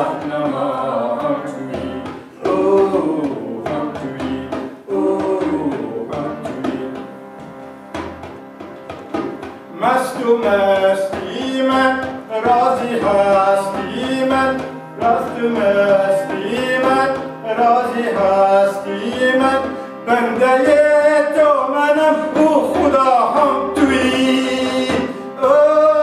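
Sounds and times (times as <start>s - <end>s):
frame drum beat: 0.0s - 26.0s
harmonium: 0.0s - 26.0s.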